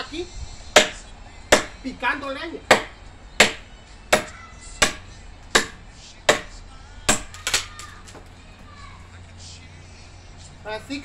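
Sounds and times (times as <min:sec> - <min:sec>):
machete chopping a branch: 0:00.8 - 0:01.8, 0:02.7 - 0:08.3.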